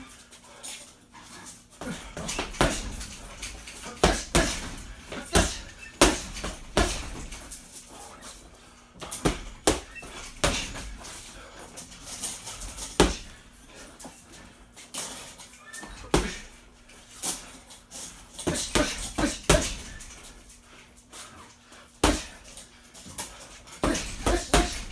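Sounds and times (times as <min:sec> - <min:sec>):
punches thudding on heavy bag: 0:01.8 - 0:07.6, 0:09.0 - 0:11.3, 0:12.5 - 0:13.4, 0:16.0 - 0:16.6, 0:18.3 - 0:20.3, 0:22.0 - 0:22.5, 0:23.8 - 0:24.9.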